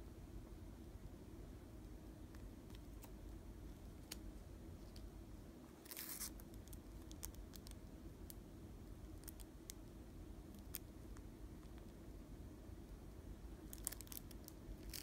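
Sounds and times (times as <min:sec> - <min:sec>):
low room hum: 0:00.0 - 0:15.0
plastic sleeve crinkling: 0:05.8 - 0:07.8, 0:13.7 - 0:15.0.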